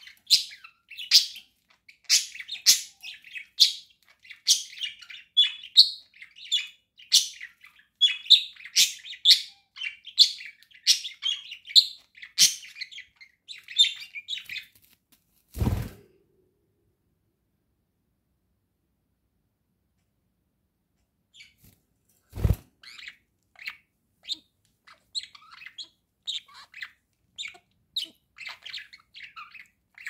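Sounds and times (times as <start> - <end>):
budgerigars chirping: 0.0 - 14.7, 22.8 - 30.0.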